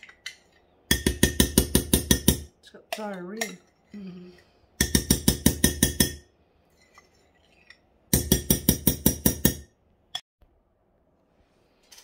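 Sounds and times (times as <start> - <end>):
metal spoon tapping glass bowl: 0.9 - 3.7.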